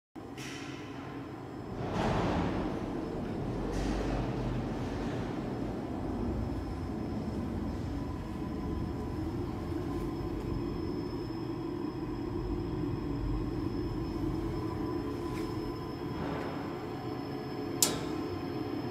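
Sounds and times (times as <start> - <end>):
faint high whine: 1.0 - 18.9.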